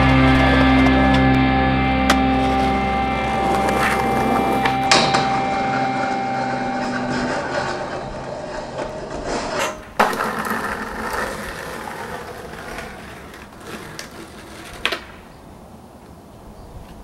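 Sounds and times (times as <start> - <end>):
skateboard wheels rolling on asphalt: 0.0 - 17.0
skateboard landing clack: 3.5 - 5.4, 8.7 - 15.3.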